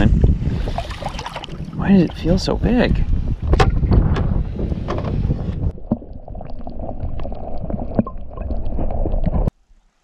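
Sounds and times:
muffled underwater wash: 0:00.0 - 0:03.6, 0:05.2 - 0:10.0
wind buffeting microphone: 0:00.0 - 0:05.9.

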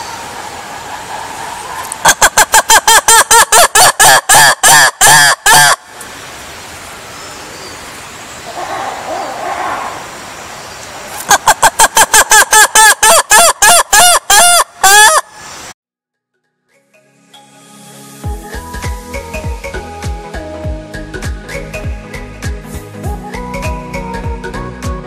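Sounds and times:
faint animal call: 0:08.5 - 0:10.2.

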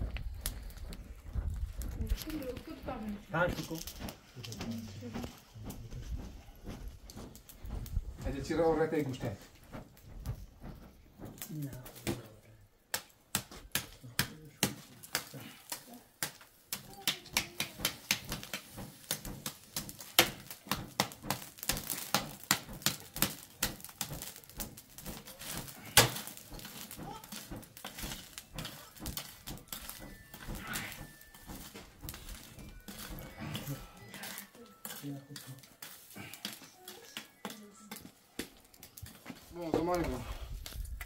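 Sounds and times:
metal rod knocking charcoal: 0:12.9 - 0:40.9.

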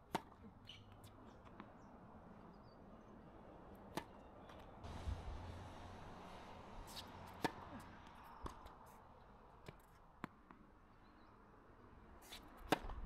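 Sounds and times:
tennis ball bouncing on court: 0:00.1 - 0:01.7, 0:03.9 - 0:04.6, 0:06.9 - 0:08.7, 0:12.2 - 0:13.0.

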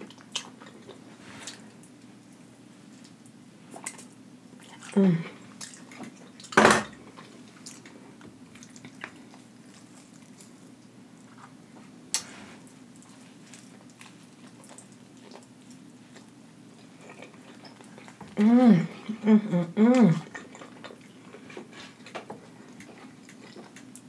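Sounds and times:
person chewing: 0:00.0 - 0:01.9, 0:03.0 - 0:24.0
wet mouth sounds: 0:17.1 - 0:21.1.

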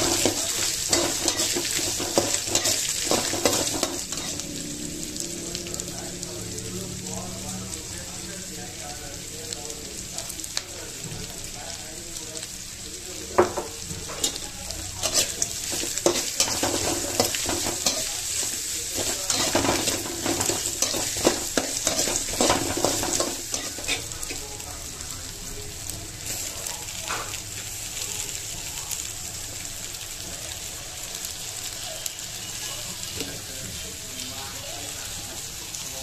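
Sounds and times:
metal spatula scraping a pan: 0:00.0 - 0:04.5, 0:14.0 - 0:14.4, 0:15.0 - 0:24.4
food frying in oil: 0:00.0 - 0:36.0.

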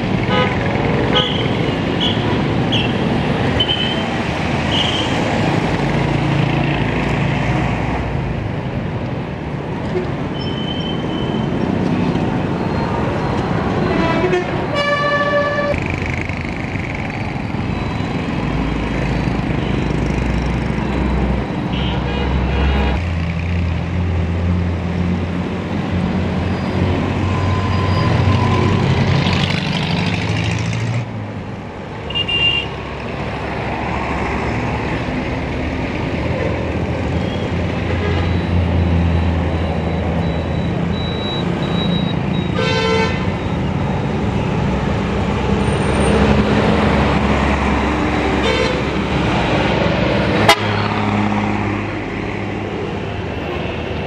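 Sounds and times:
street traffic engine drone: 0:00.0 - 0:54.0
vehicle horns: 0:00.3 - 0:03.0, 0:13.8 - 0:15.8, 0:32.1 - 0:32.8, 0:42.4 - 0:43.4, 0:48.4 - 0:48.9, 0:50.4 - 0:50.8.

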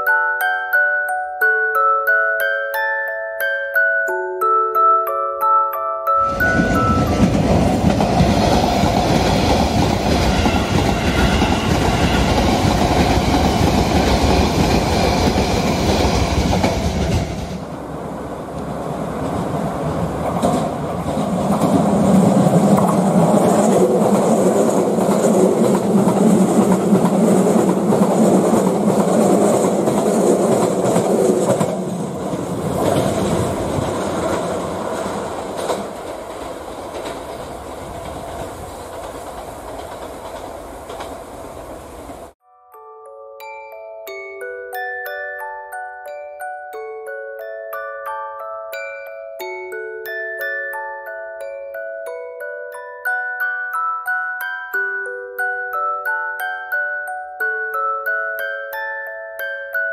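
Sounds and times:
electric train passing: 0:06.1 - 0:42.4.

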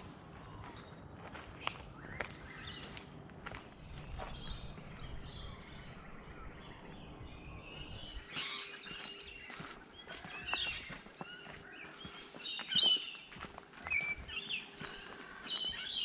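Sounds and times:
soft footsteps on a path: 0:00.0 - 0:05.5, 0:06.9 - 0:16.0
birds chirping: 0:00.3 - 0:16.0
low rumble: 0:03.8 - 0:08.3.

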